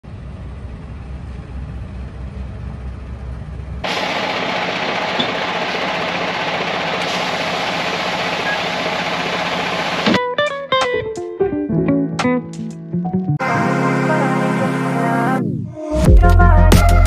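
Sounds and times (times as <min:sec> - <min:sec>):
vehicle engine rumble: 0:00.0 - 0:10.2
loud rushing noise: 0:03.8 - 0:10.2.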